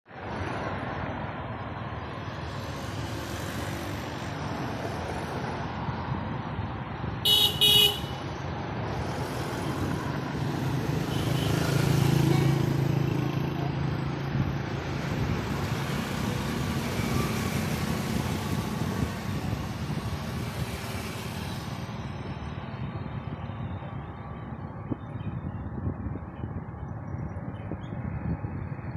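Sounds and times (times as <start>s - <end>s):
city road traffic: 0.0s - 28.9s
vehicle horn tooting: 7.2s - 8.2s
nearby vehicle engine hum: 8.8s - 28.9s.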